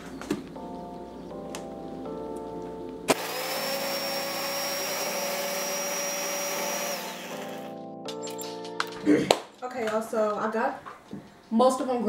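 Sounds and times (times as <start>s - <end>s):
blender motor whining: 3.1s - 7.8s.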